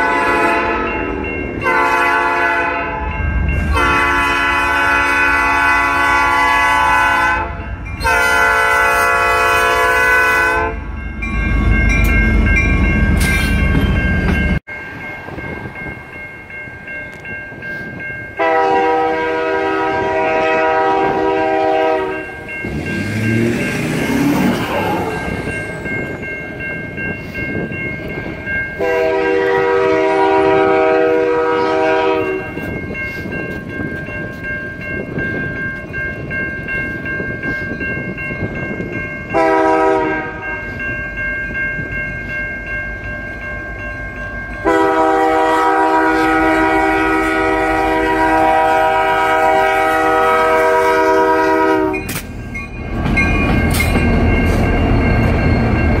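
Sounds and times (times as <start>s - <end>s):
locomotive air horn blasts: 0.0s - 1.0s, 1.6s - 10.8s, 18.4s - 22.3s, 28.8s - 32.6s, 39.3s - 40.6s, 44.6s - 52.2s
crossing bells ringing: 0.0s - 56.0s
locomotive engine and wheels rumbling: 0.0s - 56.0s.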